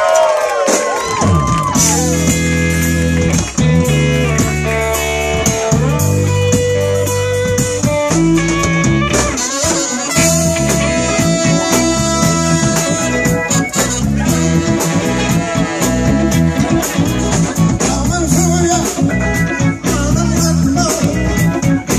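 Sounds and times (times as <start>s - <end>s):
bass guitar: 0.0s - 21.9s
drum kit: 0.0s - 21.9s
electric guitar: 0.6s - 21.9s
saxophone: 3.8s - 17.9s
trumpets: 8.4s - 17.7s.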